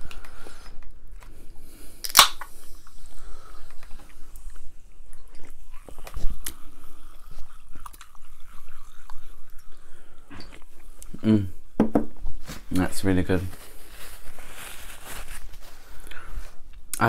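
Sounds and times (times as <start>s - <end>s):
sipping and chewing: 2.0s - 11.2s.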